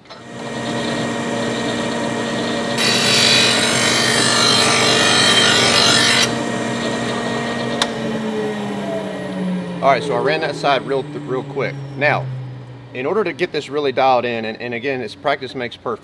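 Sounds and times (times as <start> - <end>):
harsh metal grinding: 0.0 - 8.3
blade sharpener running: 0.0 - 12.0.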